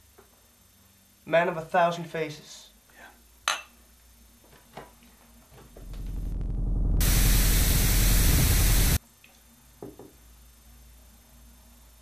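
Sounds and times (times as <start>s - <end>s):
loud static hiss: 5.7s - 9.0s
low rumbling buzz: 5.8s - 9.0s.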